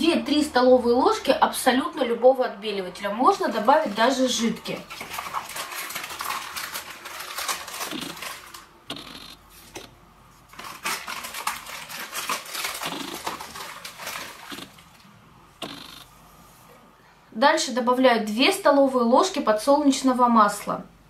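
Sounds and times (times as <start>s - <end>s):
powder grains pattering: 3.5s - 9.2s, 10.5s - 14.9s.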